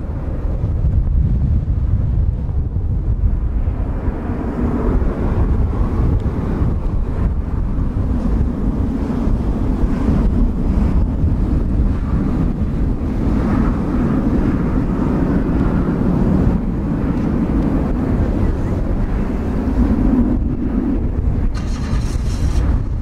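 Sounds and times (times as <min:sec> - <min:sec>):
jet engines humming: 0:00.0 - 0:23.0
wind buffeting microphone: 0:00.0 - 0:23.0.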